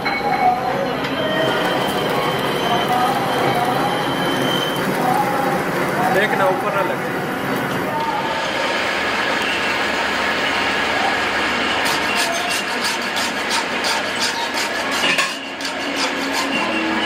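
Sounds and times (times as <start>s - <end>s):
lathe running: 1.0s - 17.0s
hand file rasping on metal rod: 11.8s - 17.0s.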